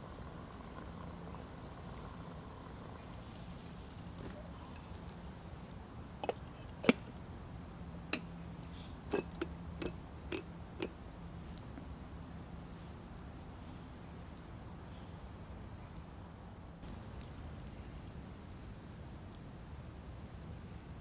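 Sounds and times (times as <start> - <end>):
metal cookware clinking: 9.1 - 9.5.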